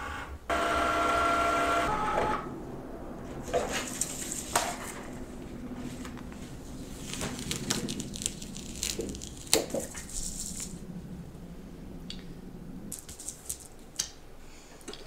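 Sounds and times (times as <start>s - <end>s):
plastic sheets crinkling and clicking: 5.9s - 10.8s.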